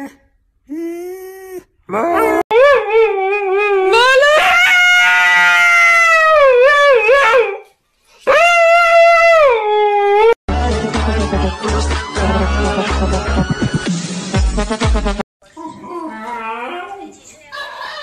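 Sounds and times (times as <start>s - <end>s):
dog howling: 0.8s - 7.7s.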